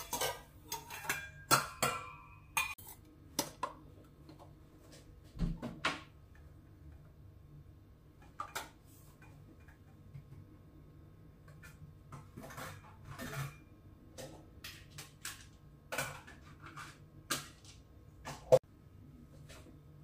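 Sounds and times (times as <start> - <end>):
dishes and utensils clinking: 0.0 - 3.0, 11.4 - 18.6.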